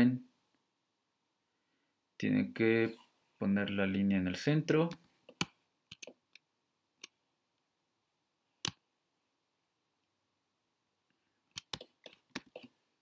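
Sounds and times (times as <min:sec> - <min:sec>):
computer mouse clicks: 0:04.9 - 0:06.4, 0:11.5 - 0:12.7.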